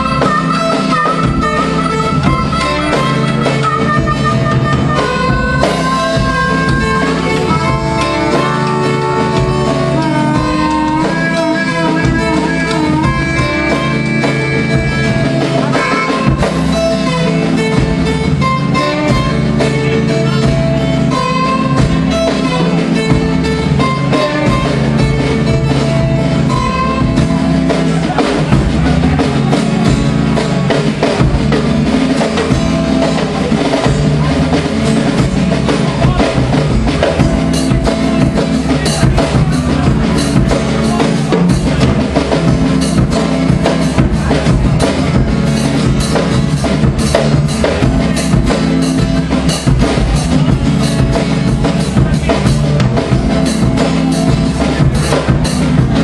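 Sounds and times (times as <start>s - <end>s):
acoustic guitar: 0.0s - 56.0s
drum kit playing: 0.0s - 56.0s.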